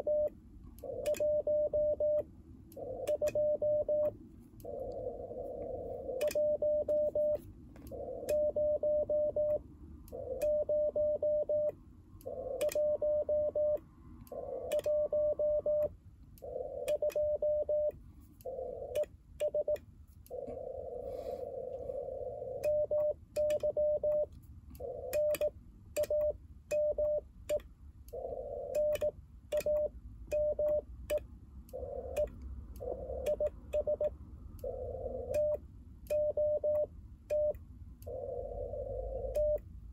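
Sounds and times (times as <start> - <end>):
morse code tone: 0.0 - 0.3, 1.0 - 2.2, 3.1 - 4.1, 6.2 - 7.4, 8.3 - 9.6, 10.4 - 11.7, 12.6 - 13.8, 14.7 - 15.9, 16.9 - 17.9, 22.6 - 24.3, 35.3 - 37.6.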